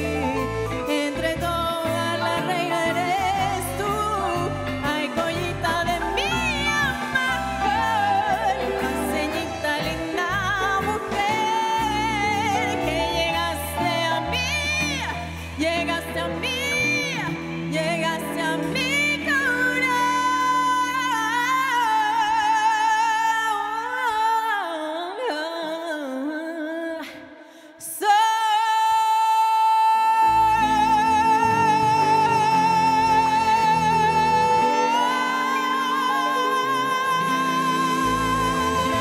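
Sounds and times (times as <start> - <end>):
band playing: 0.0 - 21.7, 30.3 - 39.0
woman singing with vibrato: 0.0 - 39.0.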